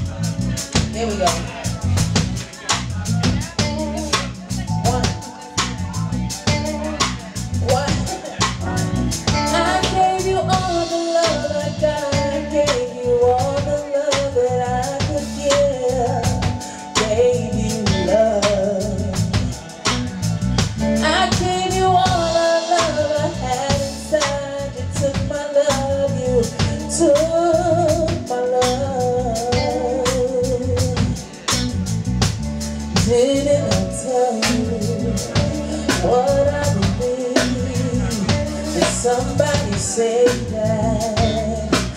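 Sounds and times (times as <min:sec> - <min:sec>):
drum kit: 0:00.0 - 0:41.9
electric bass: 0:00.0 - 0:41.9
woman singing: 0:00.6 - 0:19.8, 0:20.8 - 0:31.6, 0:32.9 - 0:41.9.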